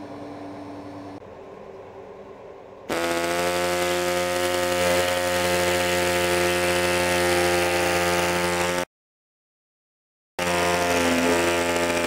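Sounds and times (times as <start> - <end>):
reciprocating saw cutting steel: 2.9 - 8.9, 10.4 - 12.0.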